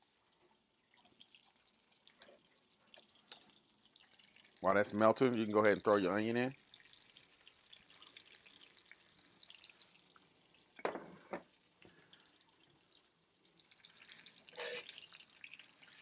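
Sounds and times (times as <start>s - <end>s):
butter and onions sizzling: 0.0s - 12.0s, 12.8s - 16.0s.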